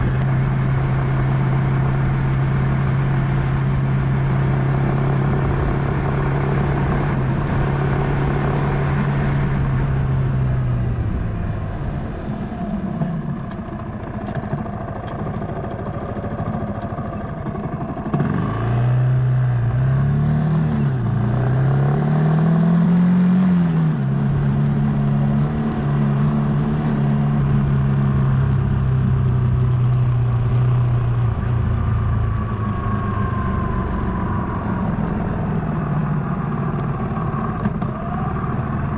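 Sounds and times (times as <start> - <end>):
single-cylinder engine running: 0.0 - 22.5, 23.2 - 38.9.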